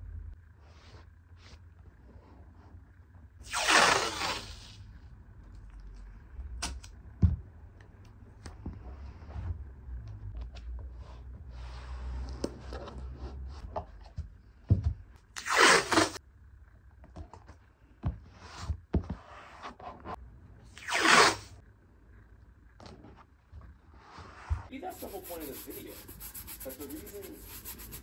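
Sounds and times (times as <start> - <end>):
tape ripping off roll: 3.4 - 4.8, 15.4 - 16.2, 20.7 - 21.5.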